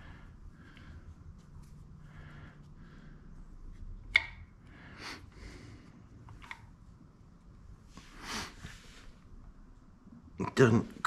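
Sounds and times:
soft rustling: 0:00.0 - 0:04.0, 0:05.3 - 0:10.0.

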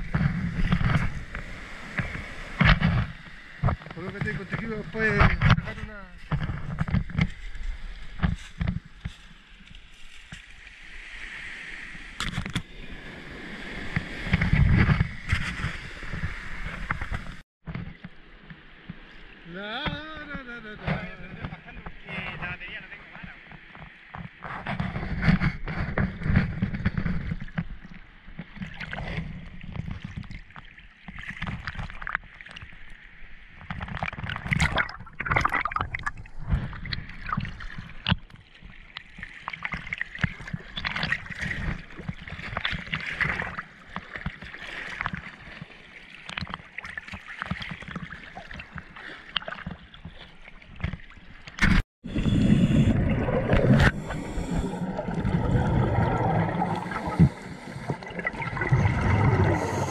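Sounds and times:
underwater gurgling and bubbling: 0:33.9 - 0:38.2, 0:52.0 - 0:59.9.

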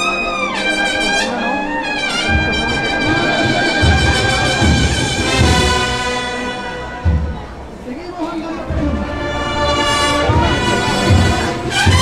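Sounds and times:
cornets playing held notes: 0:00.0 - 0:07.8, 0:08.6 - 0:12.0
bass drum beats: 0:02.2 - 0:07.8, 0:08.7 - 0:12.0.

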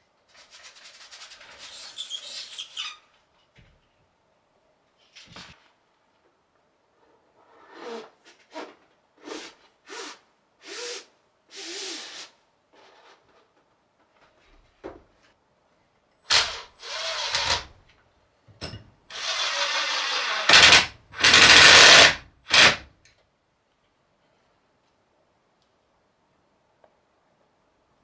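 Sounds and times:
power drill running: 0:16.3 - 0:17.7, 0:19.1 - 0:22.8.

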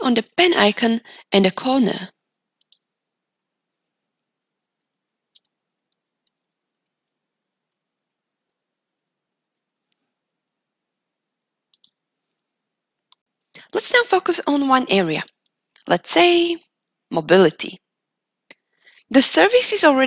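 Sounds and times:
computer mouse clicks: 0:02.6 - 0:02.9, 0:04.7 - 0:08.8, 0:11.7 - 0:12.5, 0:15.3 - 0:15.9
keyboard typing: 0:02.6 - 0:03.0, 0:03.7 - 0:10.6, 0:11.7 - 0:12.4.

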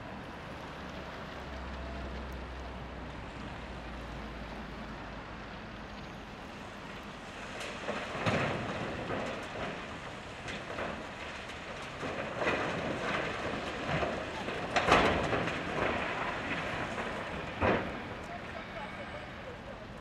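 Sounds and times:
rock pouring into steel truck: 0:07.6 - 0:18.3.

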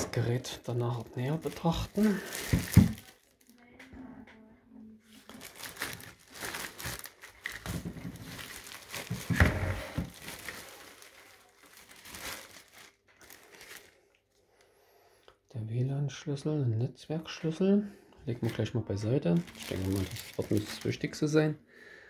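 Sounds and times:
plastic bag crinkling: 0:00.0 - 0:03.7, 0:05.1 - 0:14.2, 0:18.3 - 0:21.4.

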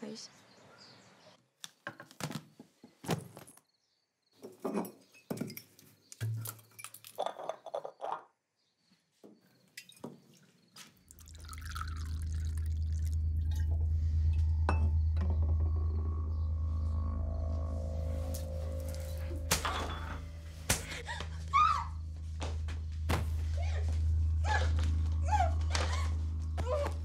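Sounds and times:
liquid poured into a glass: 0:11.1 - 0:13.9
low steady drone: 0:11.8 - 0:27.0.

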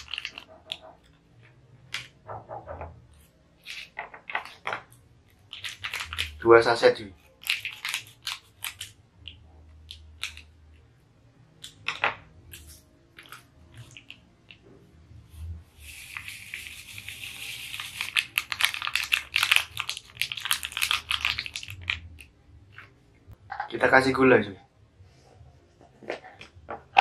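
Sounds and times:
foil packet crinkling: 0:00.0 - 0:00.8, 0:05.5 - 0:06.5, 0:07.2 - 0:09.0, 0:16.2 - 0:22.3.

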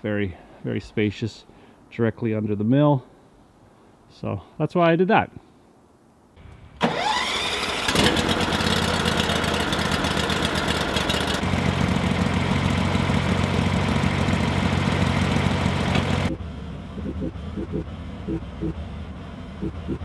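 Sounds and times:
gasoline engine starting and running: 0:06.4 - 0:20.0.

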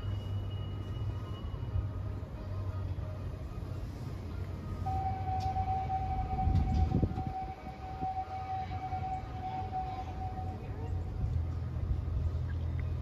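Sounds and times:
low steady rumble: 0:00.0 - 0:13.0
train whistle long note: 0:04.8 - 0:10.8.

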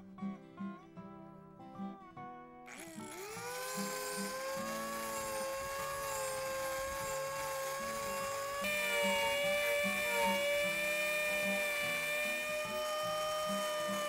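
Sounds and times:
power tool high whine: 0:02.7 - 0:14.0.

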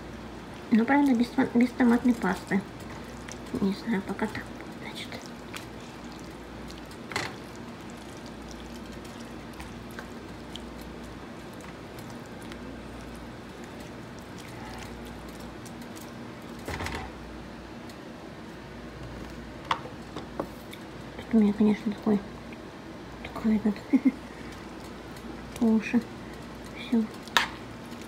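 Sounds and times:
spoon stirring wet food: 0:00.0 - 0:16.7
vegetables simmering in a frying pan: 0:00.0 - 0:17.8, 0:19.4 - 0:28.0.

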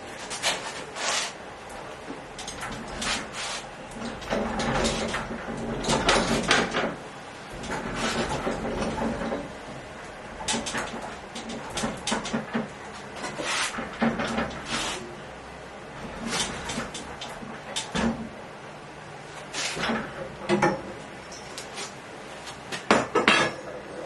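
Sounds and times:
caster wheels rolling on concrete: 0:00.2 - 0:15.1.

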